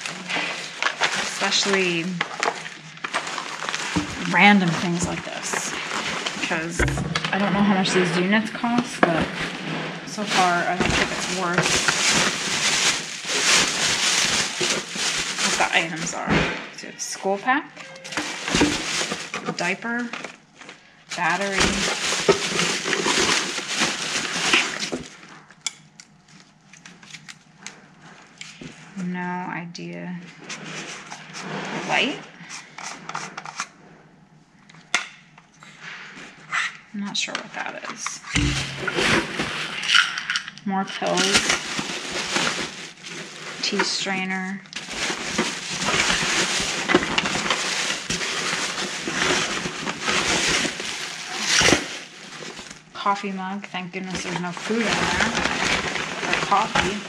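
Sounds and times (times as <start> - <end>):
paper bag rustling: 0.0 - 16.3, 17.2 - 25.4, 38.4 - 40.4, 41.0 - 57.0.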